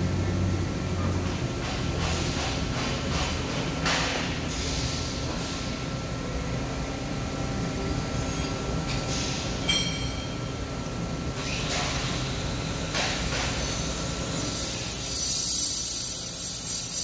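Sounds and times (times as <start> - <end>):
metallic clink: 9.6 - 10.5
welding arc hissing and buzzing: 11.4 - 17.0.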